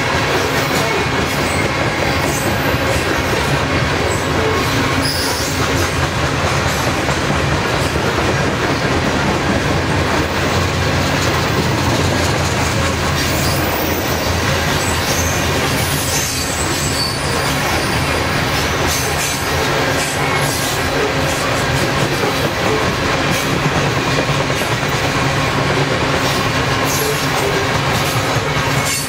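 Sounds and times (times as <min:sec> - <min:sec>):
train wheels rumbling on rails: 0:00.0 - 0:29.0
faint high wheel squeal: 0:04.9 - 0:05.6, 0:13.3 - 0:18.5.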